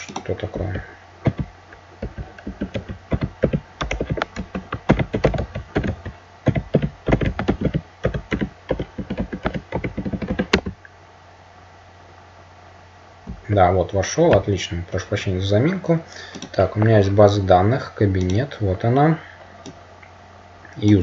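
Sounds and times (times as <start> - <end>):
typing on computer keyboard: 1.2 - 10.7.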